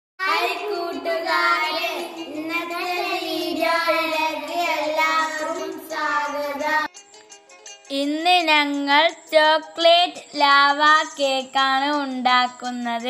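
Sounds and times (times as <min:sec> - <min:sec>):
boys singing together: 0:00.2 - 0:06.9.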